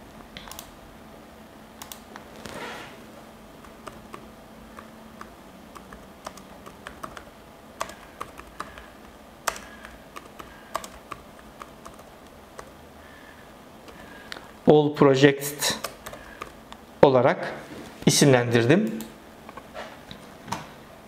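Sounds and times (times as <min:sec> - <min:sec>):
keyboard keystroke clicks: 0:00.4 - 0:00.7, 0:01.8 - 0:02.1, 0:09.5 - 0:12.0.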